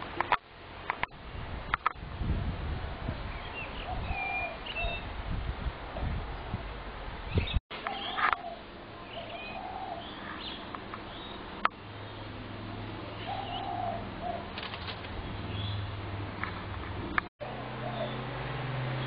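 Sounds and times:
small birds chirping: 0:03.1 - 0:05.2, 0:07.3 - 0:12.4, 0:13.0 - 0:18.4
doves cooing: 0:07.8 - 0:11.2, 0:12.3 - 0:18.4
wing flapping: 0:14.3 - 0:15.5.

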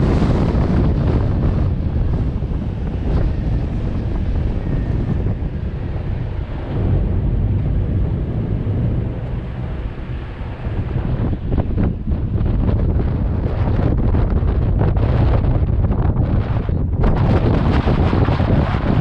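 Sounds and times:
vehicle engine rumbling: 0:00.0 - 0:19.0
wind buffeting microphone: 0:00.0 - 0:19.0.

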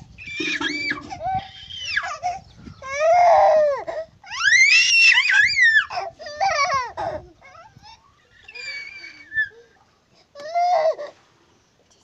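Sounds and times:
toddler crying: 0:00.3 - 0:09.8, 0:10.4 - 0:11.1.

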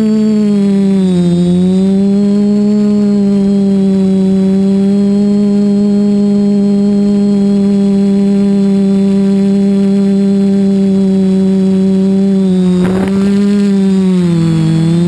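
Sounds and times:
drone motors droning: 0:00.0 - 0:15.0
short crackle: 0:12.8 - 0:13.9.

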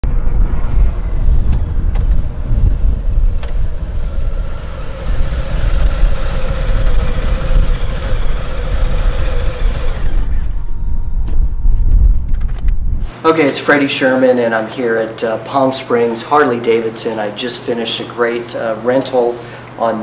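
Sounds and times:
motorcycle engine idling: 0:02.9 - 0:10.7.

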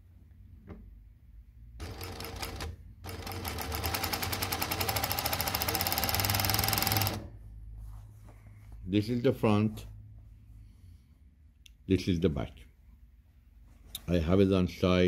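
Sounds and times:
sewing machine stitching: 0:01.8 - 0:07.3.

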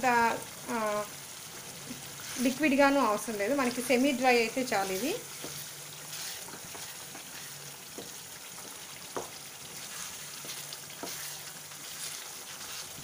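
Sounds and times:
food sizzling in oil: 0:00.0 - 0:13.0
spatula knocking against pan: 0:07.9 - 0:09.4.

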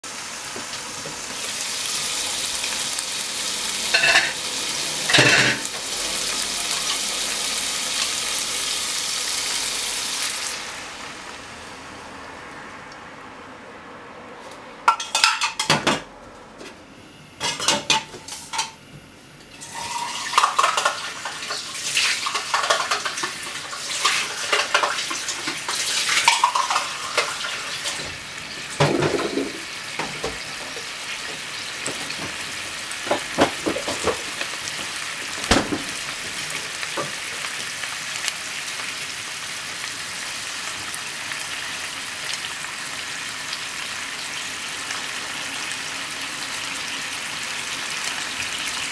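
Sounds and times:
food sizzling in a frying pan: 0:00.0 - 0:12.7, 0:17.4 - 0:18.8, 0:19.5 - 0:48.9
utensils clinking against pan: 0:03.9 - 0:04.4, 0:05.1 - 0:05.7, 0:14.9 - 0:16.0, 0:17.4 - 0:18.8, 0:19.6 - 0:28.0.

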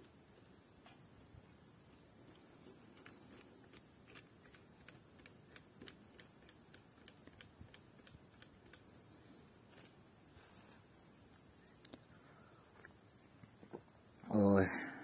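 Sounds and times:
faint irregular clicking: 0:00.0 - 0:09.0.

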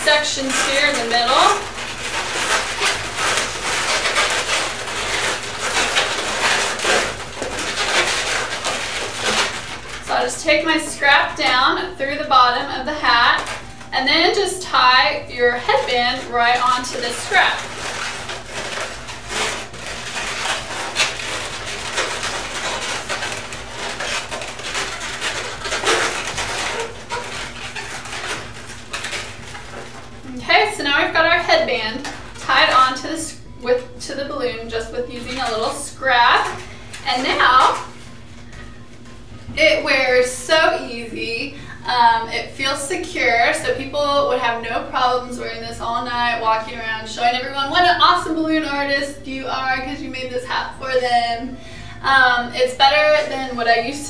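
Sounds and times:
balloons rubbing and squeaking: 0:00.0 - 0:42.3.

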